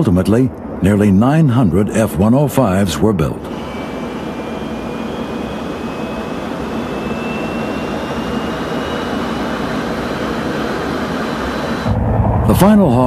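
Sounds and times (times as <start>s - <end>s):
jet engine roaring: 0.7s - 13.0s
thin rising whine: 3.4s - 13.0s.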